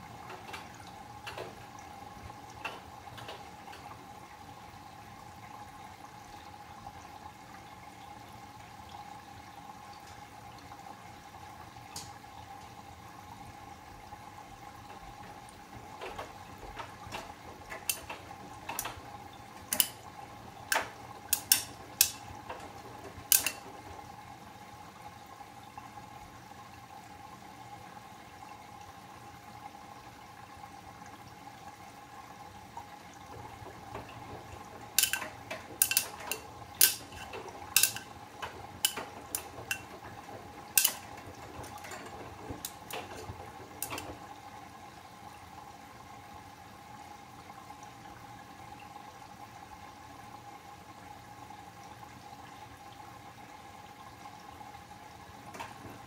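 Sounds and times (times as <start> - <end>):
washing machine whine: 0.0 - 56.0
water sloshing in drum: 10.0 - 24.6, 30.7 - 45.2
sharp metallic clanks: 23.3 - 23.6, 35.0 - 38.1, 40.8 - 41.1.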